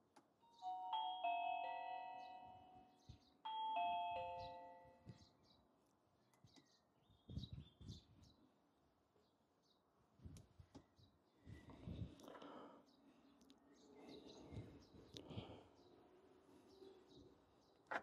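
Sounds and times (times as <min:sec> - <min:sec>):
doorbell chime melody: 0:00.4 - 0:05.3.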